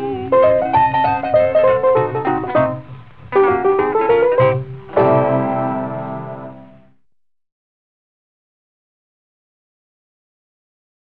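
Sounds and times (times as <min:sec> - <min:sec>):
country music instrumental: 0:00.0 - 0:06.9.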